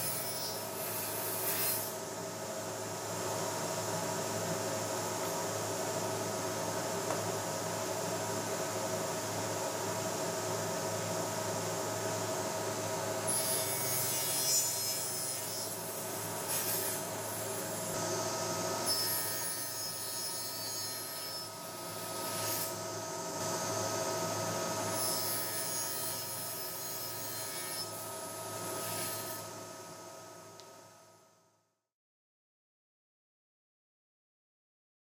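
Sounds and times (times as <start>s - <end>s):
saw blade cutting board: 0.0s - 2.0s, 13.3s - 18.1s, 18.8s - 22.8s, 24.9s - 29.5s.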